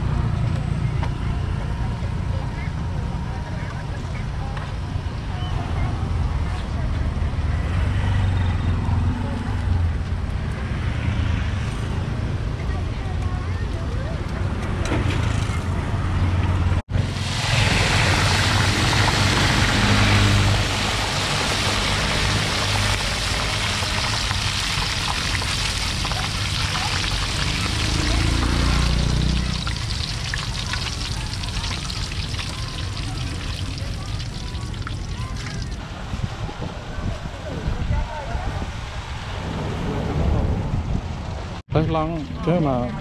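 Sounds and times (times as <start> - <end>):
insects deep-frying in oil sizzling: 17.0 - 35.4.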